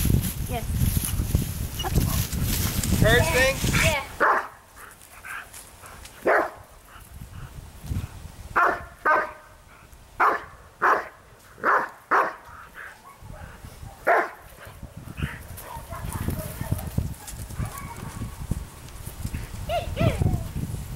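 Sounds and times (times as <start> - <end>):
dog barking sharply: 4.2 - 4.6, 6.2 - 6.6, 8.6 - 9.4, 10.2 - 12.4, 14.0 - 14.4.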